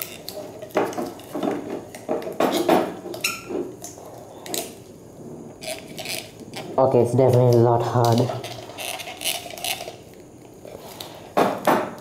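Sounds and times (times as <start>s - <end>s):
syringe scraping glass beaker: 5.6s - 6.8s.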